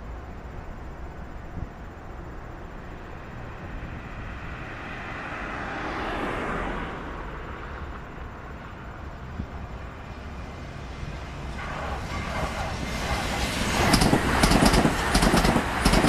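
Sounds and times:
outdoor rumble: 0.0s - 16.0s
vehicle passing: 3.4s - 16.0s.

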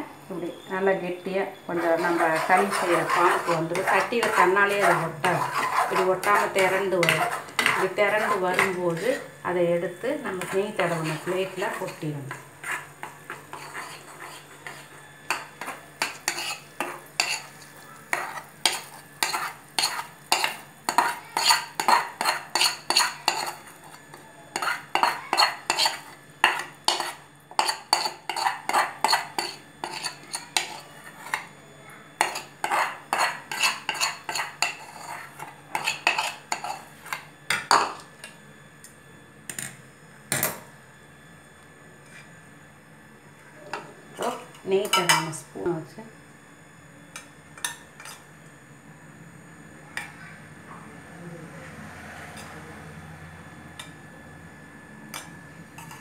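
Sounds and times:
metal spoon scraping a pan: 1.7s - 31.5s, 32.2s - 38.0s, 44.3s - 45.4s, 47.6s - 48.3s, 55.1s - 56.0s.

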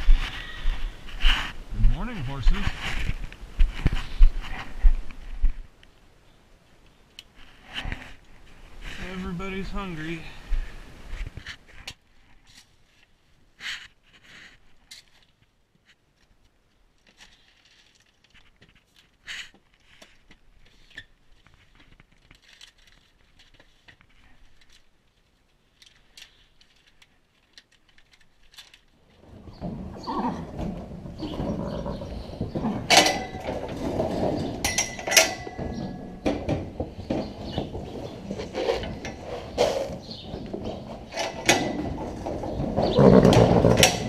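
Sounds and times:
barn clatter: 25.8s - 44.0s
horses calling: 29.1s - 44.0s.

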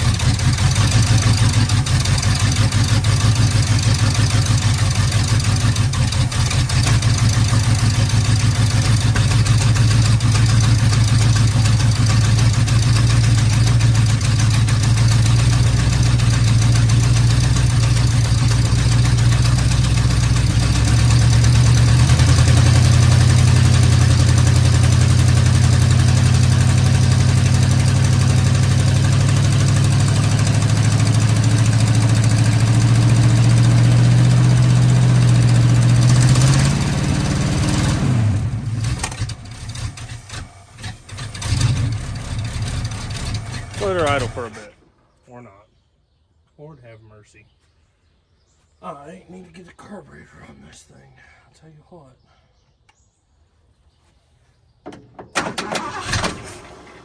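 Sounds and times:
truck engine idling: 0.0s - 45.0s.

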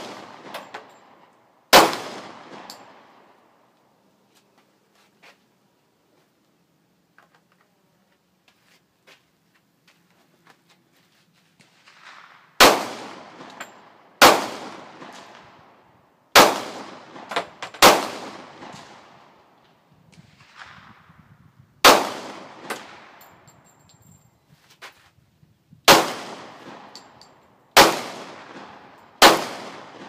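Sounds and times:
handgun shots echoing: 25.9s - 30.0s.

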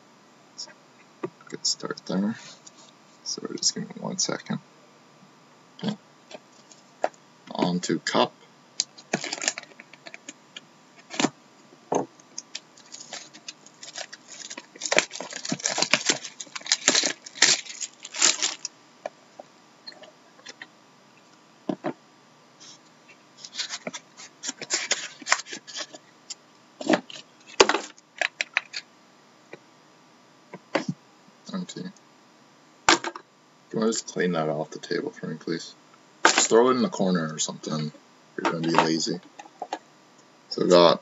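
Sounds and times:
foil wrapper crinkling: 9.0s - 10.2s, 12.4s - 18.7s, 23.5s - 26.0s.

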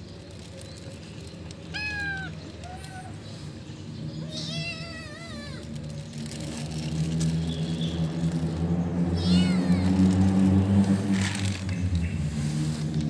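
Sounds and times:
vehicle engine humming: 0.0s - 13.0s
cat meowing: 1.7s - 3.2s, 4.2s - 5.7s, 9.2s - 10.1s.

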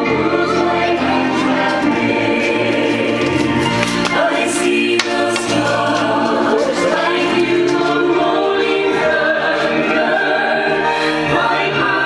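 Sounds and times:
choir singing a hymn over speakers: 0.0s - 12.0s.

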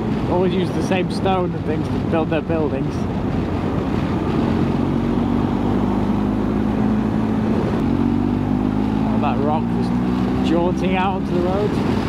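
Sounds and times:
wind rushing past: 1.3s - 10.4s
motorcycle engine running: 3.0s - 12.0s.

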